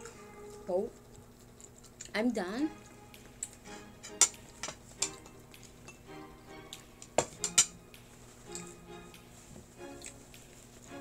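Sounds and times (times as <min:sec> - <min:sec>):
plates and cutlery clinking: 0:03.4 - 0:07.8, 0:08.5 - 0:08.8.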